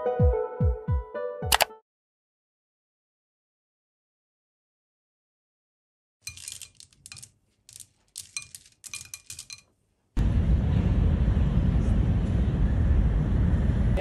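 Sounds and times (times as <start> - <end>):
cereal clinking on porcelain bowl: 6.2 - 9.7
moving vehicle rumble: 10.2 - 14.0.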